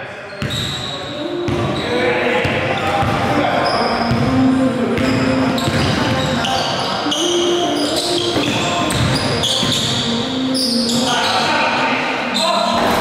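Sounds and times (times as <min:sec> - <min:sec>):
sneaker squeaks: 0:00.1 - 0:13.0.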